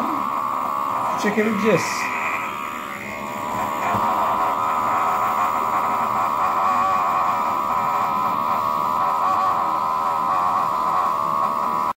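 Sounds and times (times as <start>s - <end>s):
small pump motor whining: 0.0s - 12.0s.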